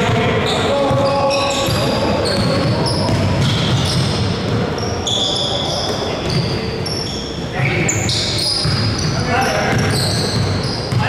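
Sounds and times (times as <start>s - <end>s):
basketball dribbling: 0.0s - 4.8s, 8.6s - 11.0s
players' voices: 0.0s - 11.0s
sneakers squeaking on hardwood: 0.0s - 11.0s.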